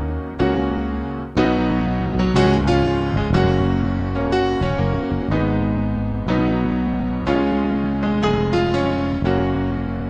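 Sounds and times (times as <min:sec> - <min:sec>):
slow soft piano music: 0:00.0 - 0:10.0.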